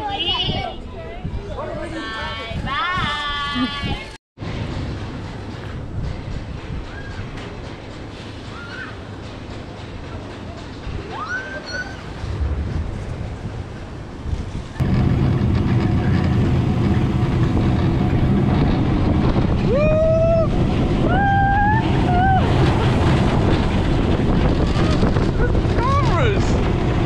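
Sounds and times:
wind on microphone: 0.0s - 4.2s, 11.9s - 27.0s
roller coaster rumbling on track: 0.0s - 27.0s.

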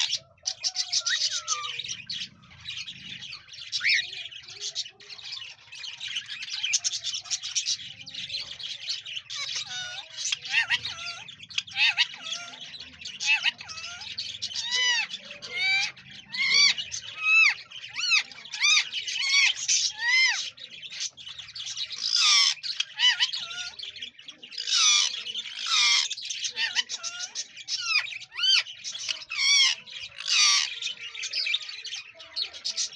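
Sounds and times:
parakeet harsh squawks: 0.0s - 2.6s, 9.2s - 21.2s, 21.9s - 23.8s, 24.6s - 31.7s.

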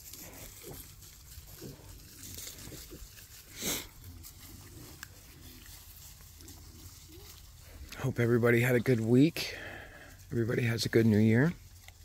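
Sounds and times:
piglets crunching in dry leaves: 0.0s - 12.0s
piglets grunting softly: 0.1s - 5.8s.

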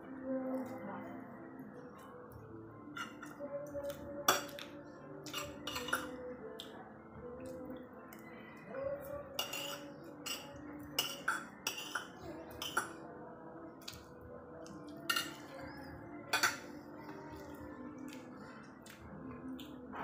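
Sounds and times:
cutlery clinking on ceramic plate: 5.3s - 6.2s, 9.4s - 13.0s, 15.0s - 15.5s, 16.3s - 16.8s.

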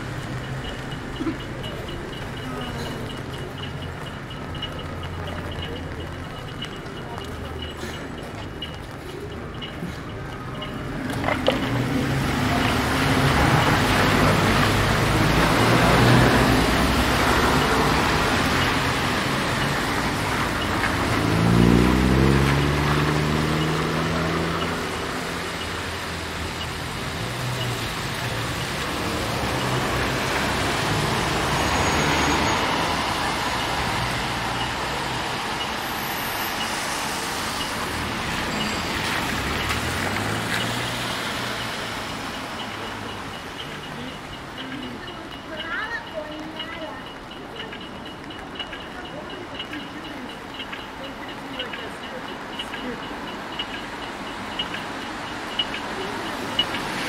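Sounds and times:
traffic engines running: 0.0s - 57.0s
tyres hissing on wet road: 12.0s - 44.1s
vehicle engine revving: 20.9s - 25.4s.

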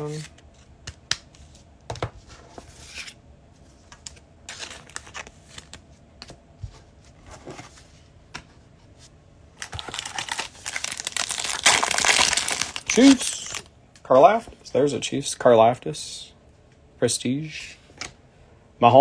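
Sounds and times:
foil card pack crinkling: 9.6s - 13.7s.

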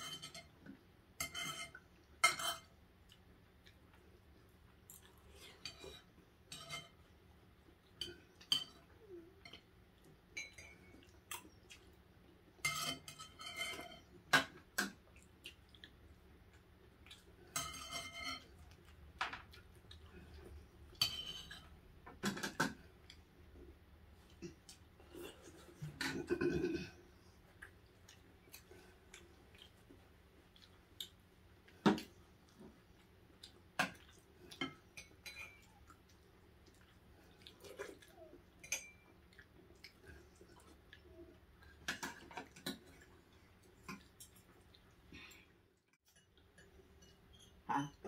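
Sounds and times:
cutlery clinking against dishes: 0.0s - 0.6s, 1.2s - 2.7s, 5.6s - 7.0s, 8.0s - 9.7s, 10.3s - 11.0s, 12.6s - 15.0s, 17.5s - 18.6s, 20.9s - 22.9s, 33.8s - 35.8s, 38.6s - 39.2s, 46.1s - 47.6s.

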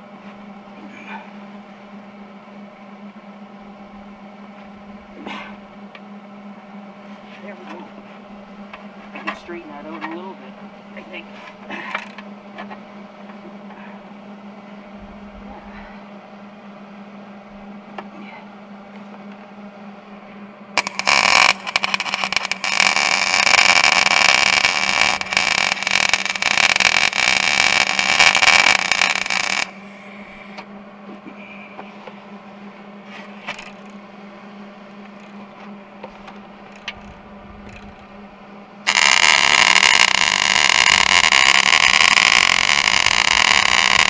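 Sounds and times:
steady low hum: 0.0s - 44.0s
welder arc crackling: 20.8s - 30.7s, 33.4s - 34.0s, 36.0s - 38.1s, 38.8s - 44.0s.

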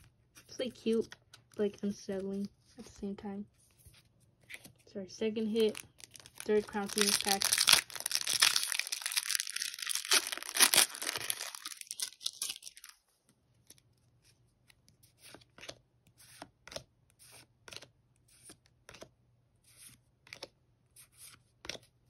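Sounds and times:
foil wrapper tearing and crinkling: 5.6s - 13.0s.

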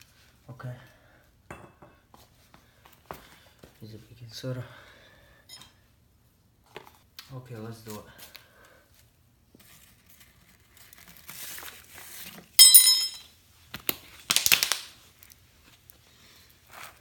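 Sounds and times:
paper funnel rustling: 9.6s - 12.6s
plastic bottle crinkling: 13.8s - 15.4s.

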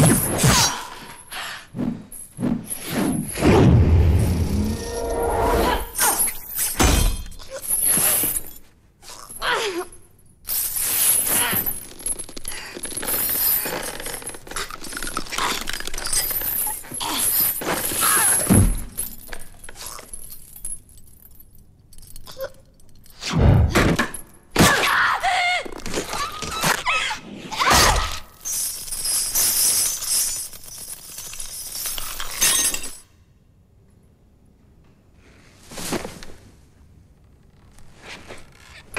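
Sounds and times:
heavy blows: 1.8s - 6.0s
chain weapon whipping and clinking: 5.8s - 24.5s, 27.6s - 33.1s.

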